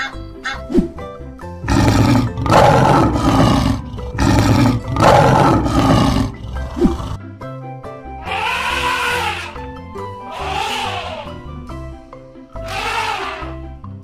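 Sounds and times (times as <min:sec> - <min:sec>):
background music: 0:00.0 - 0:14.0
lion roaring: 0:01.6 - 0:07.2.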